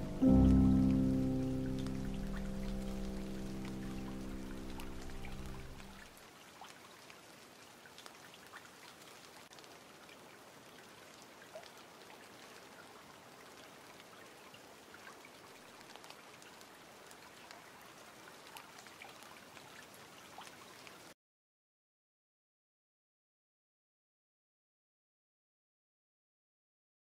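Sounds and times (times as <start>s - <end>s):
faint steady hiss: 0.0s - 6.6s.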